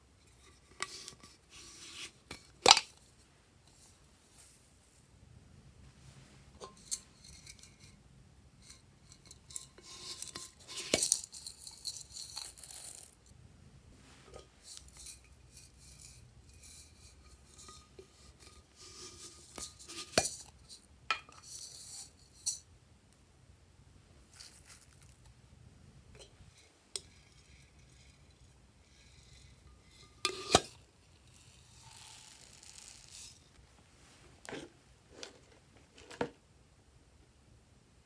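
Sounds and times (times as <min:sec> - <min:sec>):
rustling: 0:24.2 - 0:25.4, 0:26.2 - 0:36.4.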